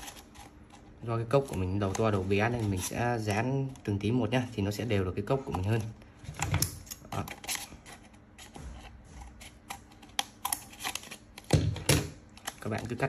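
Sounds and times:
plastic cup handling: 0.0s - 4.3s.

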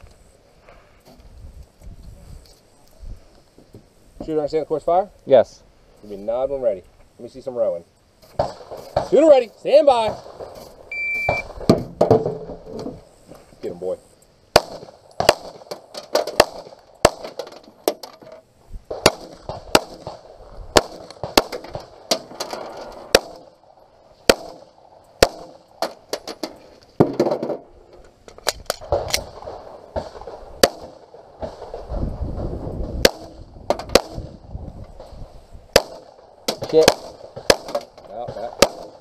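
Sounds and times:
pistol shots: 14.5s - 17.4s, 18.9s - 22.2s, 23.1s - 23.6s, 24.3s - 26.0s, 28.8s - 31.8s, 33.0s - 34.3s, 35.7s - 39.0s.

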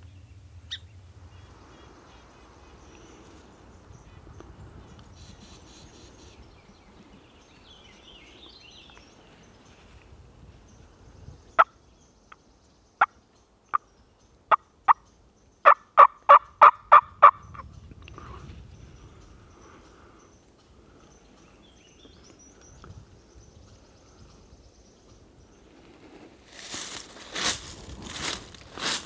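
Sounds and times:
turkey clucking: 15.6s - 17.4s
turkey yelps: 15.6s - 17.4s.

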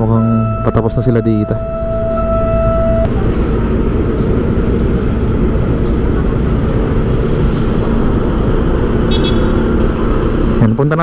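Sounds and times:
motorcycle engine at low speed: 3.1s - 11.0s.

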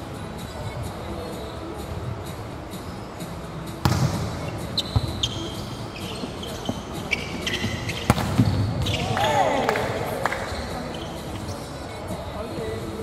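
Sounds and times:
sneakers squeaking on floor: 0.6s - 12.9s
volleyball being struck: 3.8s - 5.2s, 7.9s - 9.0s.

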